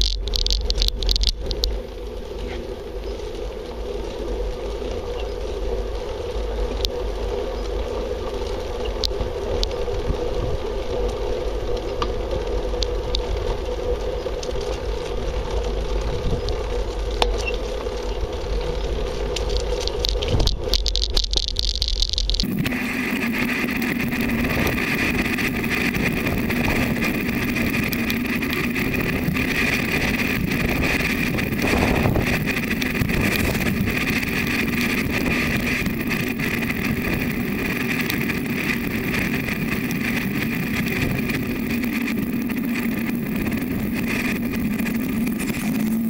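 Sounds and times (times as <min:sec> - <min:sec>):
faint clicks: 0:00.0 - 0:03.3, 0:16.4 - 0:22.5
wheels rolling on tarmac: 0:00.0 - 0:46.0
wind rumble on microphone: 0:00.0 - 0:46.0.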